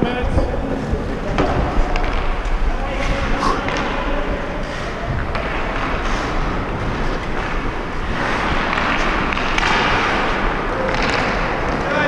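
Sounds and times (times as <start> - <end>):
skate blades on ice: 4.7 - 12.0.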